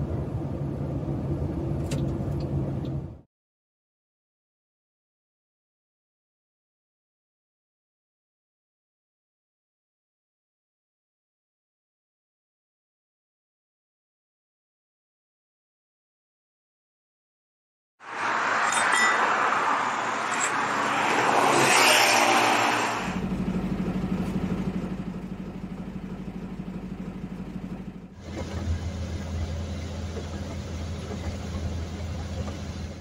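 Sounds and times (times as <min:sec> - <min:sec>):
road noise: 0:00.0 - 0:03.3, 0:18.0 - 0:33.0
truck engine from inside cab: 0:00.0 - 0:03.3, 0:18.1 - 0:33.0.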